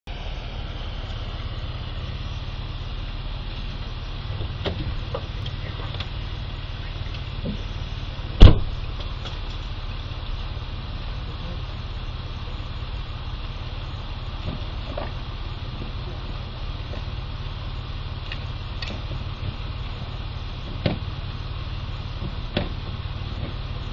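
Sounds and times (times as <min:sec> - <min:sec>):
car engine idling: 0:00.0 - 0:23.9
sharp loud bang: 0:08.4 - 0:08.8.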